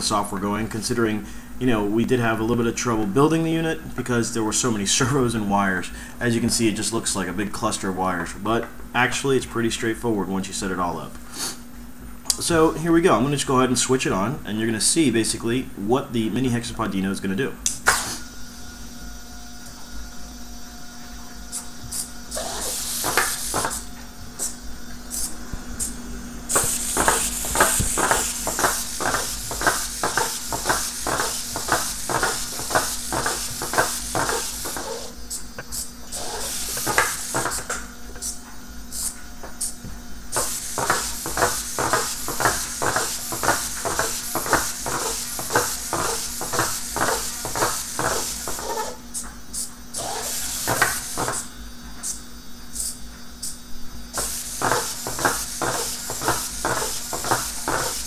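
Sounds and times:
servos whirring: 21.4s - 52.2s.

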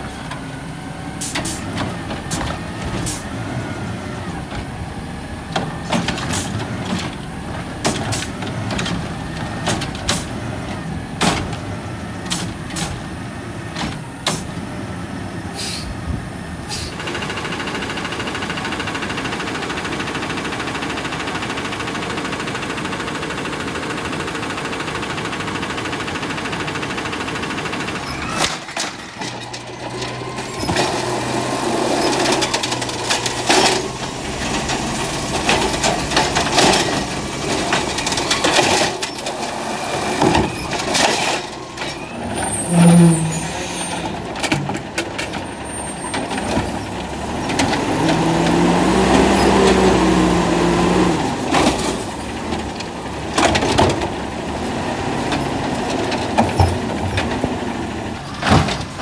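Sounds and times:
truck engine running: 0.0s - 59.0s
hydraulic whine: 28.0s - 44.6s.

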